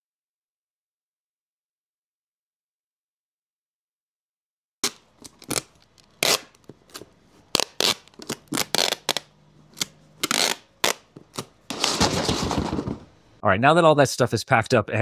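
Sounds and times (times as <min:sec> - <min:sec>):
plastic packaging crinkling: 0:04.8 - 0:13.2.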